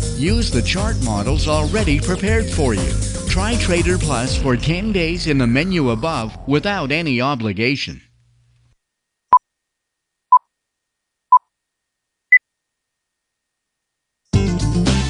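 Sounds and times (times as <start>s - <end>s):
music: 0.0s - 7.2s, 14.3s - 15.0s.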